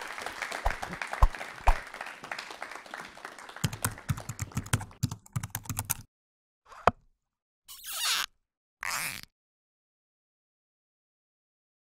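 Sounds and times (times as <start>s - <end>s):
computer keyboard typing: 3.6s - 6.1s.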